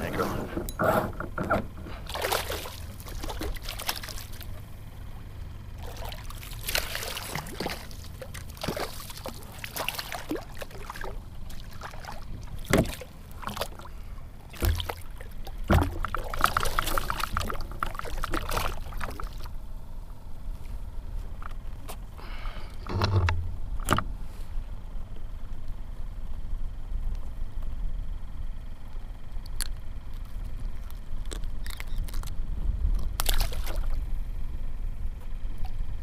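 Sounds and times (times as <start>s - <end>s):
steady low rumble: 0.0s - 36.0s
water splashing against kayak: 1.6s - 4.9s, 5.8s - 19.6s.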